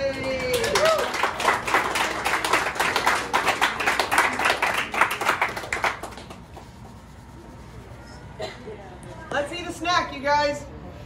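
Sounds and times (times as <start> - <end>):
people clapping: 0.0 - 7.0.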